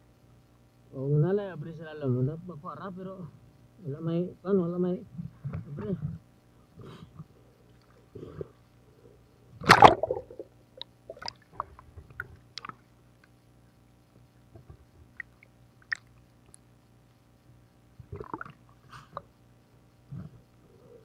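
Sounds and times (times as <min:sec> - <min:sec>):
faint steady hum: 0:00.0 - 0:21.0
water splashing and sloshing: 0:09.6 - 0:10.5, 0:11.1 - 0:12.8
small clicks and pops: 0:09.7 - 0:13.8, 0:14.5 - 0:17.2.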